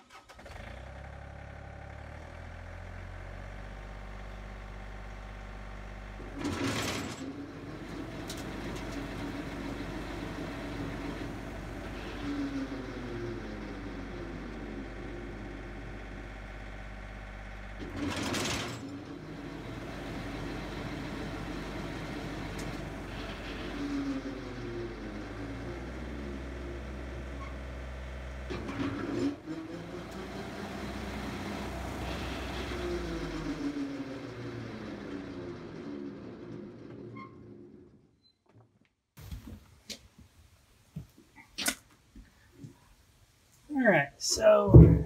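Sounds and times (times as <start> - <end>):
diesel tractor engine running: 0.0 - 38.1, 44.3 - 45.0
sudden clatter: 6.2 - 9.6, 44.7 - 45.0.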